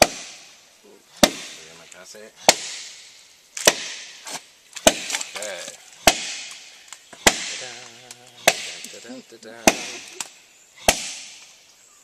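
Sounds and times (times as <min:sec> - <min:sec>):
blade chopping into log: 0:00.0 - 0:00.4, 0:01.2 - 0:01.6, 0:03.6 - 0:09.0, 0:09.6 - 0:10.2, 0:10.8 - 0:11.4.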